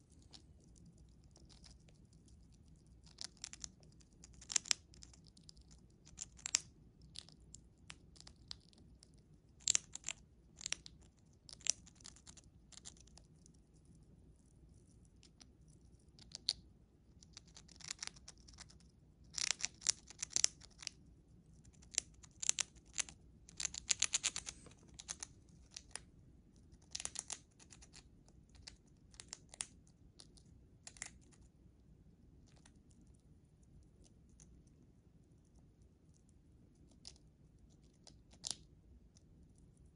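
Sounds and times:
chipmunk crunching a chip: 0.1 - 14.0, 15.2 - 21.0, 21.6 - 26.0, 26.7 - 31.4.

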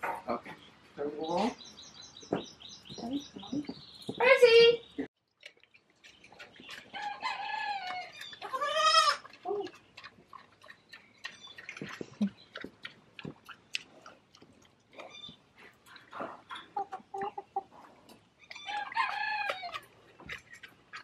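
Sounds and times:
chickens squawking: 6.3 - 13.8, 15.0 - 21.0.

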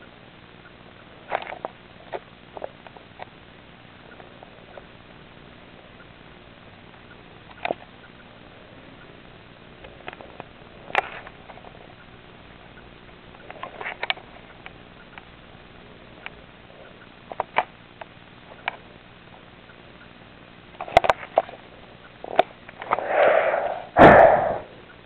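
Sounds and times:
small clicks and rustles: 1.2 - 3.4, 7.4 - 7.9, 9.8 - 12.1, 13.3 - 15.3, 20.7 - 21.6
loud breathy sniffs: 22.8 - 24.7.

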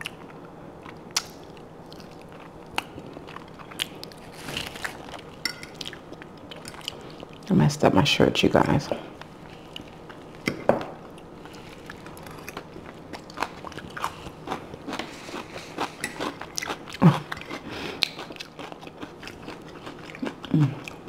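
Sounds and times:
chewing and biting food: 0.0 - 7.5, 11.1 - 21.0
person humming: 20.5 - 20.9.

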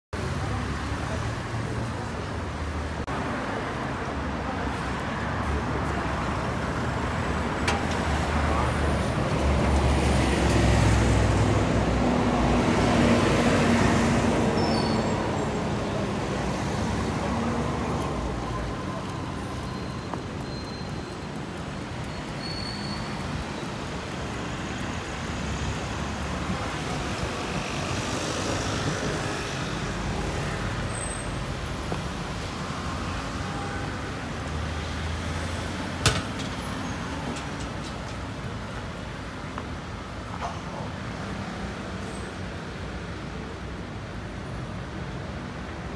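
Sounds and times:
city street traffic hum: 0.1 - 45.9
cars and motorbikes passing: 0.2 - 19.8, 23.2 - 45.9
sharp knock: 36.0 - 36.6.

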